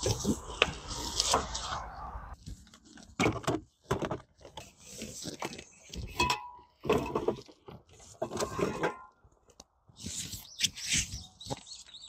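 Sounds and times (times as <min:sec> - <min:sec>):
items clattering and knocking: 0:02.5 - 0:09.2.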